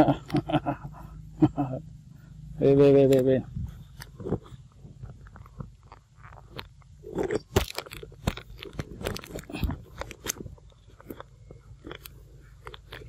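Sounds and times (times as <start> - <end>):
monkey crunching fruit: 0.0 - 2.4, 3.0 - 13.0.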